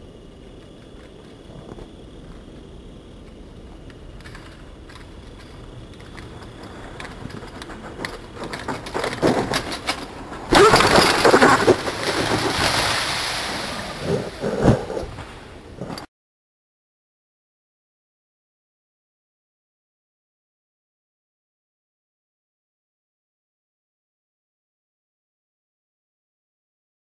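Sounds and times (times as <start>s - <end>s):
mountain bike rolling on grass: 0.0s - 16.1s
bike clicks and knocks: 0.5s - 12.0s
rustling crash through grass: 10.5s - 14.2s.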